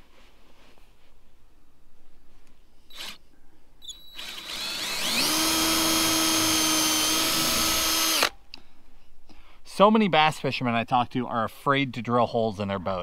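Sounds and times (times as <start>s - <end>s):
cordless drill whining: 2.9s - 3.2s, 3.8s - 8.4s.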